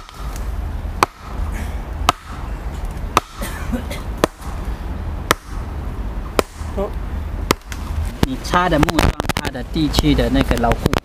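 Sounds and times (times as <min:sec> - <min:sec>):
sledgehammer striking wooden stake: 0:00.0 - 0:00.4, 0:01.0 - 0:01.4, 0:02.0 - 0:02.4, 0:03.1 - 0:03.5, 0:04.2 - 0:04.6, 0:05.2 - 0:05.7, 0:06.3 - 0:06.8, 0:07.4 - 0:08.0.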